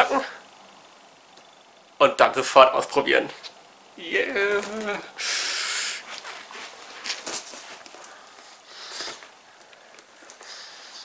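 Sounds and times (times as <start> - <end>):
loud scraping hiss: 5.2 - 6.2, 8.6 - 9.3
soft rustles and taps: 6.1 - 10.5.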